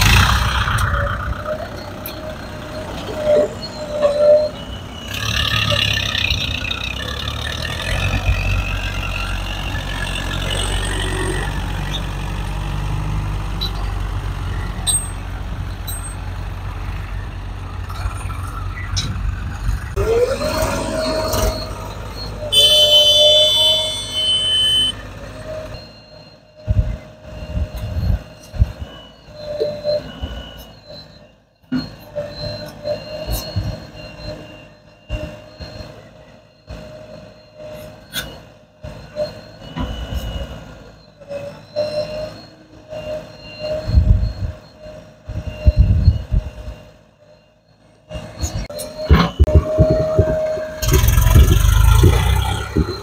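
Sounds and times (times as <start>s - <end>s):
tractor diesel engine rumbling: 0.0s - 53.0s
rising whine: 18.2s - 25.0s, 48.1s - 53.0s
loud high-pitched tone: 20.0s - 25.1s.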